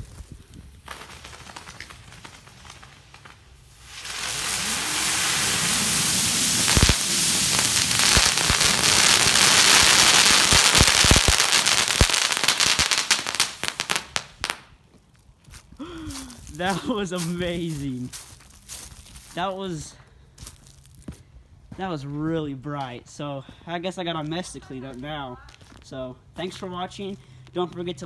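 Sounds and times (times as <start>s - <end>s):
fireworks hissing crackle: 0.0s - 14.7s, 15.8s - 21.0s
sharp firework pops: 0.8s - 14.8s.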